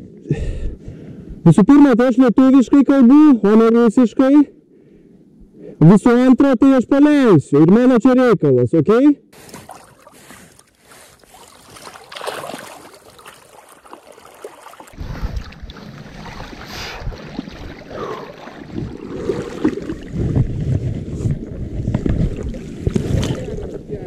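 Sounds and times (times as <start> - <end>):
river water sloshing and splashing: 9.4 - 23.8
wind on microphone: 15.0 - 24.0.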